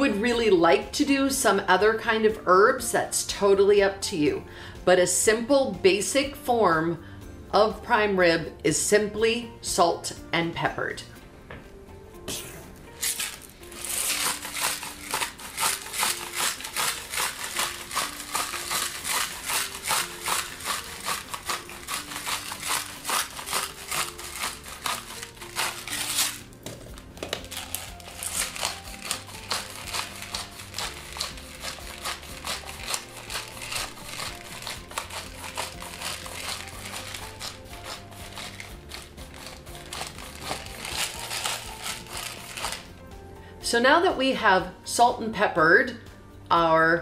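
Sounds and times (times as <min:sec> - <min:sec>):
background music: 0:00.0 - 0:47.0
pepper mill grinding: 0:13.0 - 0:43.0.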